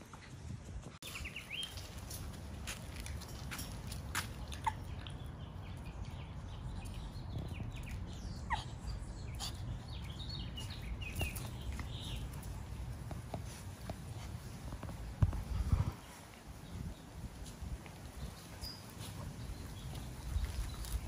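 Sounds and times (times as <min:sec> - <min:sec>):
puppies chirping: 0:03.1 - 0:13.0.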